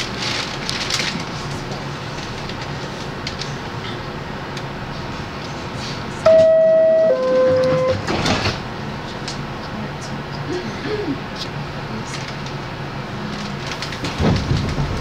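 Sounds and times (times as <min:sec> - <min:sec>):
stopped train hum: 0:00.0 - 0:15.0
two-tone door-closing chime: 0:06.3 - 0:08.1.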